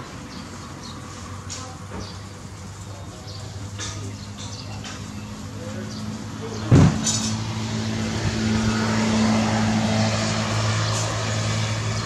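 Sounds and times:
vehicle engine humming: 0.0 - 12.0
sharp thump: 6.7 - 7.4.

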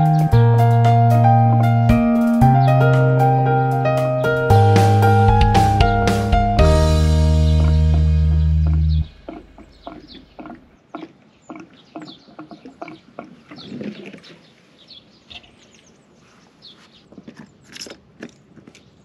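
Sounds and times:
small birds chirping: 6.8 - 19.0.

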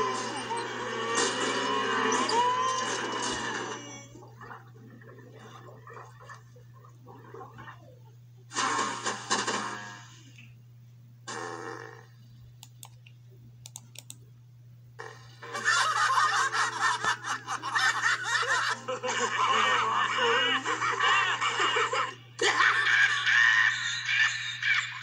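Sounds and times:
steady low hum: 0.0 - 25.0
faint clicks: 12.5 - 14.2
cartoon characters laughing: 15.4 - 25.0
hyena cackling laugh: 15.5 - 25.0.

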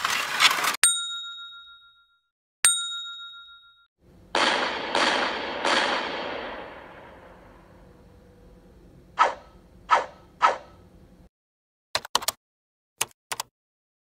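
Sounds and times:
bright ding: 0.8 - 3.9
noisy hits: 4.3 - 8.5.

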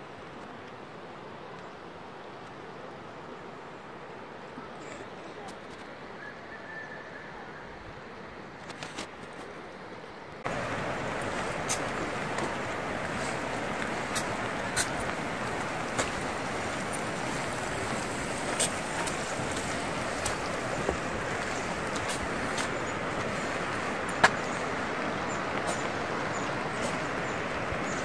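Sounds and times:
rushing outdoor ambience: 7.6 - 28.0.

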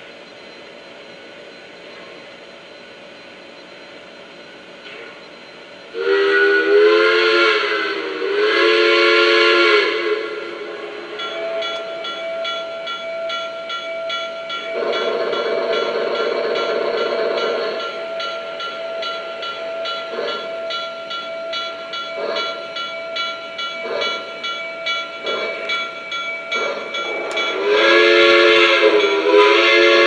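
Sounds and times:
model steam locomotive chuffing: 0.0 - 30.0
steam hiss: 4.8 - 12.8, 25.1 - 30.0
multi-tone steam whistle: 5.9 - 13.8, 14.4 - 25.7, 26.5 - 30.0.

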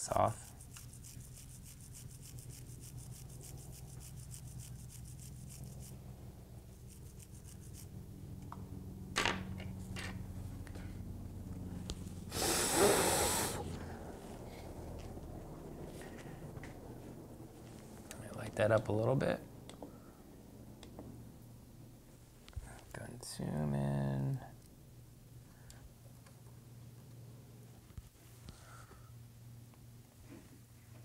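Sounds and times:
steady low hum: 0.0 - 31.0
toothbrush rubbing: 0.1 - 6.0, 6.7 - 8.0.

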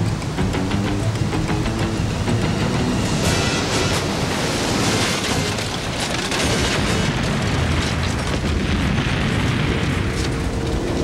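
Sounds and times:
cartoon explosion with deep rumble: 6.7 - 10.5.

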